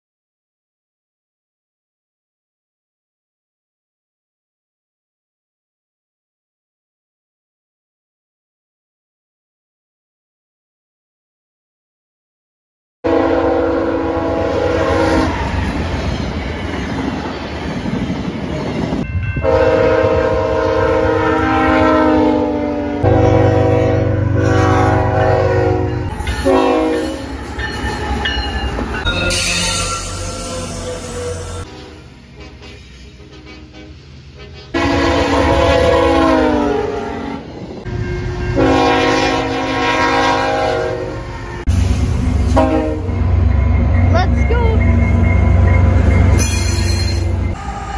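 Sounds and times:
train horn chord: 13.0s - 15.4s, 19.4s - 27.2s, 30.8s - 41.4s, 42.4s - 43.5s
train cars rumbling and clattering: 14.1s - 21.8s, 23.0s - 47.9s.

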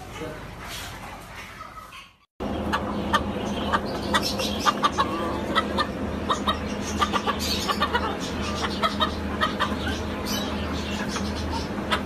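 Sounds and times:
flock of chickens clucking: 0.0s - 12.0s
steady low hum: 2.4s - 12.0s.

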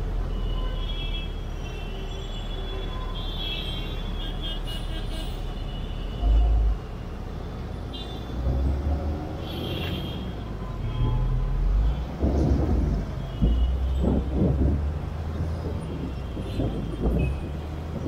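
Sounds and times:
city traffic rumble: 0.0s - 18.0s.

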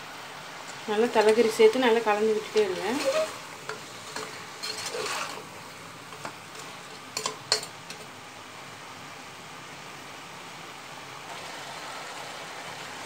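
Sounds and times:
faint frying sizzle: 0.0s - 13.0s
metal spatula scraping a pot: 2.3s - 8.1s.

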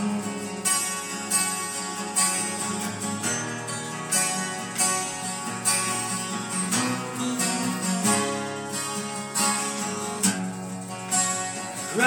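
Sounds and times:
acoustic guitars strumming: 0.0s - 12.0s.

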